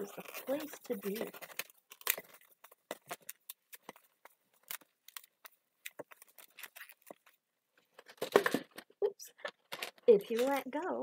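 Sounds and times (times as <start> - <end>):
balloon squeaking and rubbing: 0.0 - 7.4.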